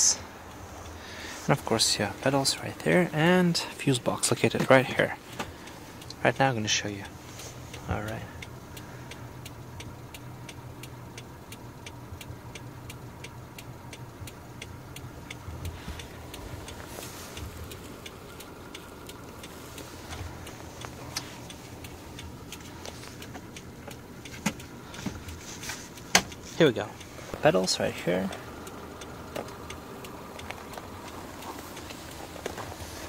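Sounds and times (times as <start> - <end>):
car engine idling hum: 0.0 - 33.0
rapid clicking ticks: 1.6 - 33.0.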